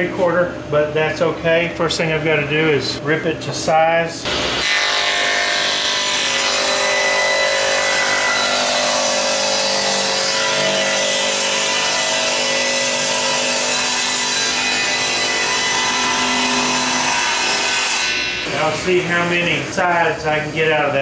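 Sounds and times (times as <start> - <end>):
table saw cutting wood: 4.3 - 19.8.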